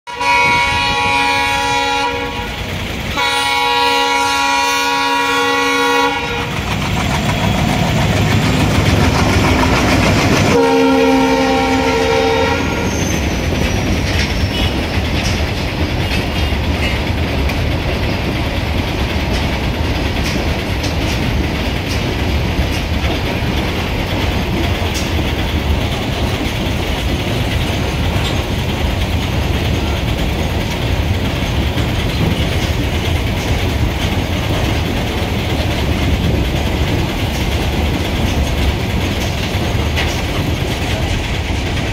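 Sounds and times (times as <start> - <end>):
train horn blasts: 0.1 - 6.7, 10.4 - 13.2, 14.5 - 14.8
diesel locomotive engine rumble: 0.1 - 41.9
wagons clattering over rail joints: 5.8 - 41.9.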